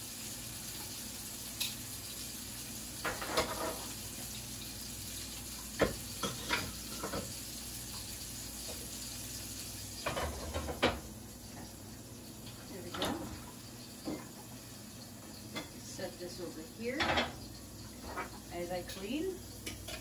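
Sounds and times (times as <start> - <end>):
steak sizzling in a pan: 0.0 - 20.0
kitchen things knocking: 3.0 - 3.9, 10.0 - 11.1, 17.0 - 17.4.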